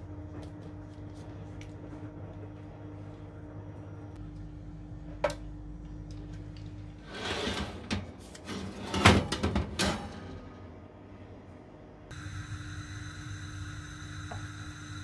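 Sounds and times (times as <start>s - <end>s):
baking tray scraping and clunking: 7.0s - 10.3s.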